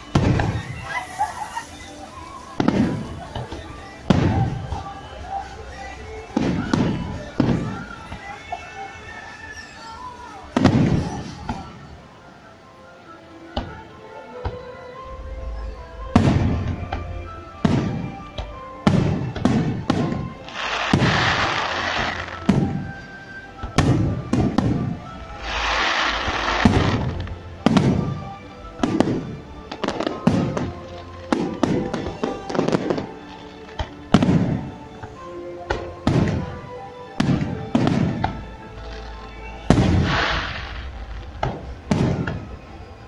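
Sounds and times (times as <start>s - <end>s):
firework shells bursting with bangs: 0.0s - 4.9s, 16.2s - 23.0s, 23.6s - 28.2s, 37.2s - 42.6s
dense firework crackling: 0.0s - 12.0s, 16.0s - 35.0s, 37.2s - 43.0s
music: 0.0s - 43.0s.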